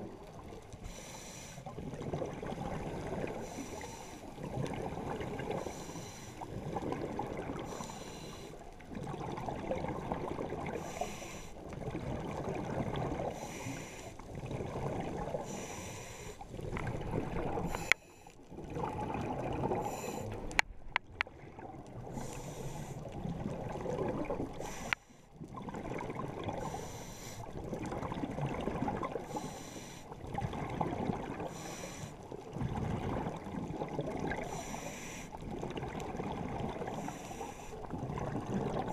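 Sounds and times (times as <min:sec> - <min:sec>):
gurgling exhaled bubbles: 0:01.6 - 0:03.8, 0:04.4 - 0:05.8, 0:06.4 - 0:07.9, 0:08.6 - 0:11.0, 0:11.6 - 0:15.8, 0:16.4 - 0:17.9, 0:18.5 - 0:20.6, 0:21.3 - 0:24.8, 0:25.4 - 0:38.9.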